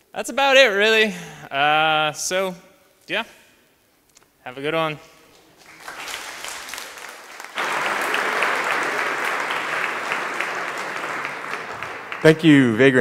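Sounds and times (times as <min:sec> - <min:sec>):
audience applause: 0:05.6 - 0:13.0.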